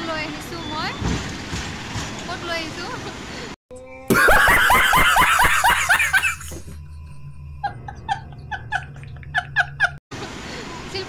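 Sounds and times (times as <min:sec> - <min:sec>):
man laughing hard: 0:04.1 - 0:06.8.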